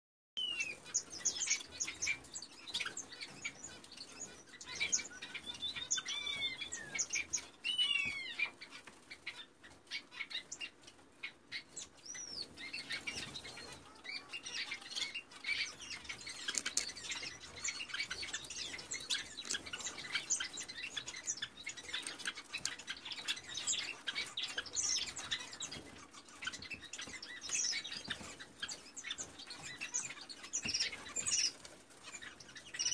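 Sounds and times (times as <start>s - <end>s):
nestlings chirping: 0.4s - 32.9s.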